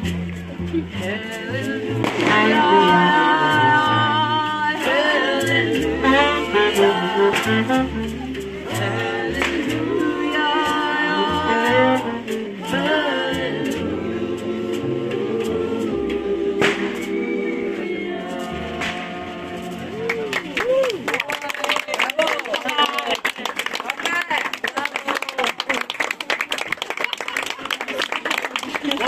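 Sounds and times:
voices singing: 0:00.0 - 0:20.7
saxophone: 0:00.0 - 0:21.0
plucked double bass: 0:00.0 - 0:21.1.

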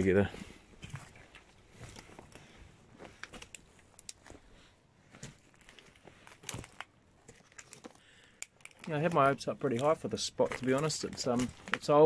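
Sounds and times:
footsteps crunching on pebbles: 0:08.9 - 0:12.0.

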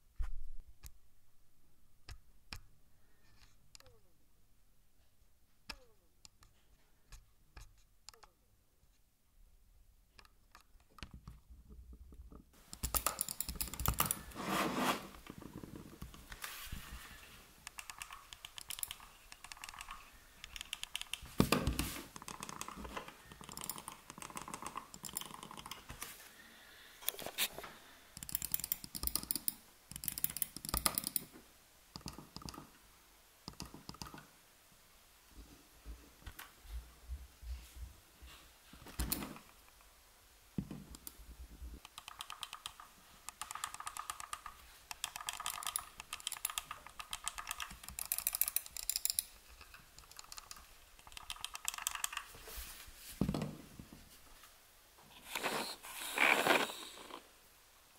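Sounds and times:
mouse scroll wheel ticks: 0:12.7 - 0:14.4, 0:17.6 - 0:21.3, 0:22.2 - 0:25.9, 0:28.2 - 0:31.3, 0:32.0 - 0:32.7, 0:33.5 - 0:34.3, 0:41.8 - 0:52.3
mouse clicks and scraping: 0:12.7 - 0:26.2, 0:32.0 - 0:32.7, 0:41.8 - 0:52.4, 0:55.1 - 0:57.2.

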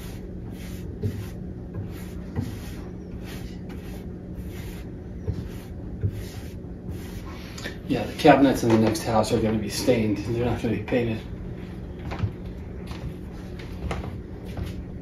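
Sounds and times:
paintbrush swishing on wood: 0:00.0 - 0:08.8
steady low hum: 0:00.0 - 0:15.0.

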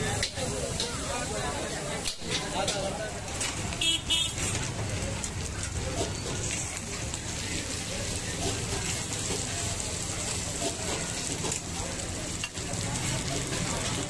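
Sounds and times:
food sizzling on a griddle: 0:00.0 - 0:14.0.

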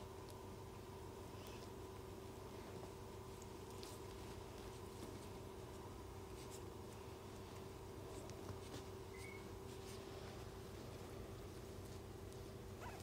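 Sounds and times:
steady hum: 0:00.0 - 0:13.0
puppies scratching on carpet: 0:00.6 - 0:13.0
faint squeak: 0:09.1 - 0:09.6, 0:12.8 - 0:13.0.

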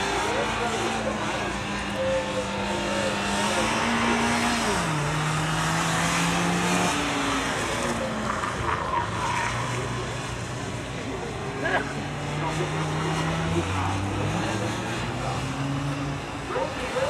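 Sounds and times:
car engine running hard: 0:00.0 - 0:17.0
tyre squeal and skidding: 0:01.3 - 0:10.5.

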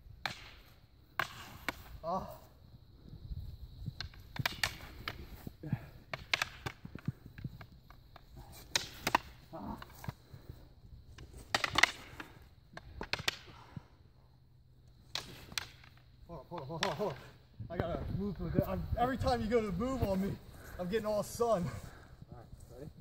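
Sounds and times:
wooden sticks clacking: 0:04.0 - 0:05.4, 0:06.0 - 0:10.5, 0:11.1 - 0:13.8, 0:15.0 - 0:17.4.

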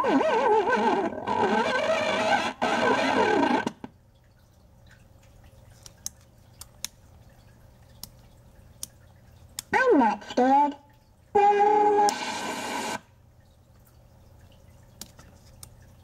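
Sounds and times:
warbling electronic toy tones: 0:00.0 - 0:03.7.

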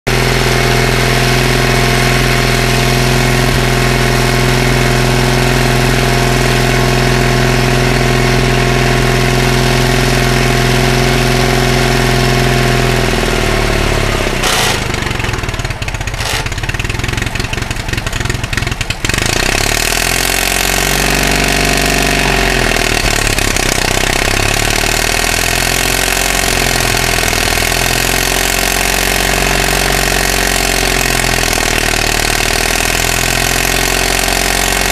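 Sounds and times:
diesel engine running: 0:00.1 - 0:34.9
engine knocks: 0:14.4 - 0:20.8.

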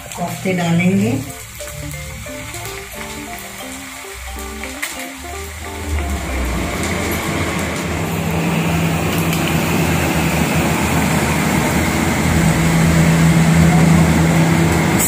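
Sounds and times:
food deep-frying in oil: 0:00.0 - 0:15.0
low hum: 0:05.6 - 0:15.0.

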